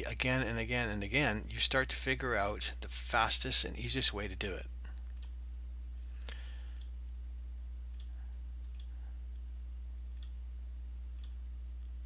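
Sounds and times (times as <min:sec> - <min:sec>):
low electrical hum: 0:00.0 - 0:12.0.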